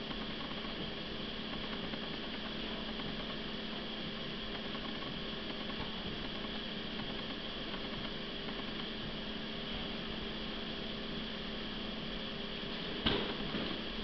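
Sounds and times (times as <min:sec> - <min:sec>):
low hum with hiss: 0:00.0 - 0:14.0.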